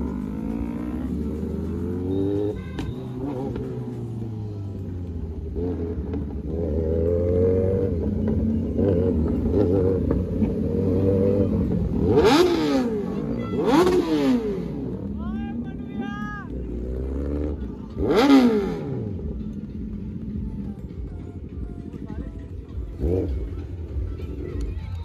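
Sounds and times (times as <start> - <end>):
motorcycle engines revving: 0.0 - 25.0.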